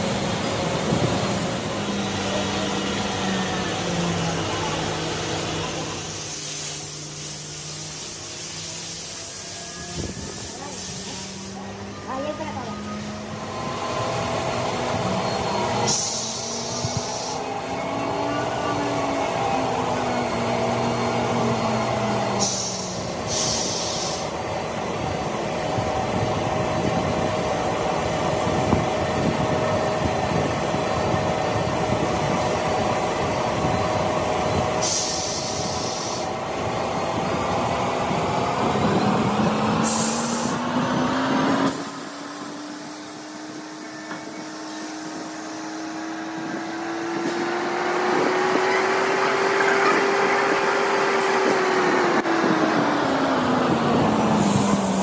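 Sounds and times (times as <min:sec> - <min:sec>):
short hissing bursts: 0:22.4 - 0:24.3.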